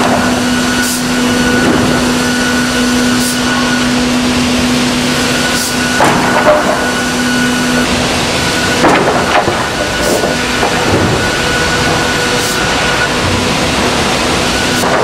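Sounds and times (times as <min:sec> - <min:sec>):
wood-processing machine whining: 0:00.0 - 0:15.0.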